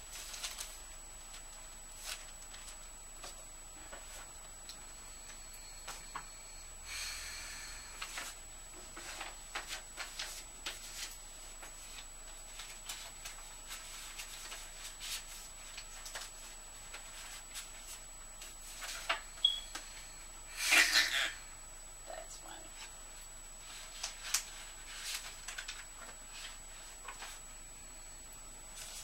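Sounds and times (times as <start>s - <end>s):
paper rustling and crinkling: 0.0s - 4.3s, 8.0s - 19.2s, 23.6s - 27.5s, 28.7s - 29.0s.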